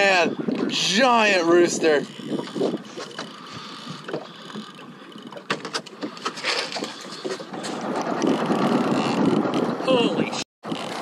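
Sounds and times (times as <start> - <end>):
sharp clicks and knocks: 2.0 - 9.7.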